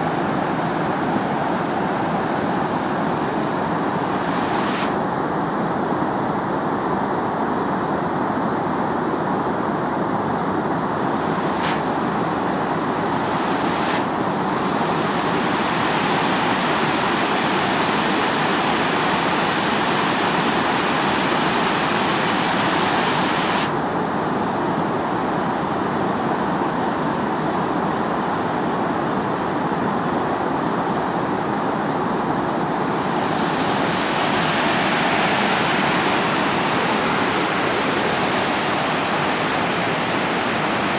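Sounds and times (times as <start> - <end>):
river water rushing over rocks: 10.3 - 24.5, 31.6 - 40.9.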